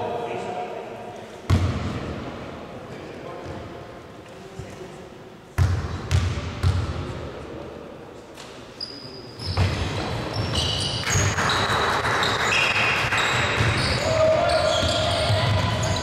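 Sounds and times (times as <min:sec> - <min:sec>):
shoes squeaking on court: 0:08.4 - 0:16.0.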